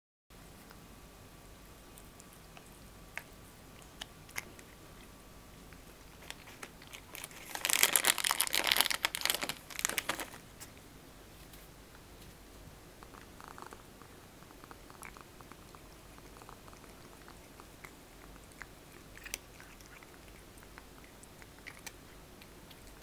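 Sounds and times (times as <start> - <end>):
cat crunching dry treat: 1.9 - 5.1, 5.7 - 10.4, 14.4 - 23.0.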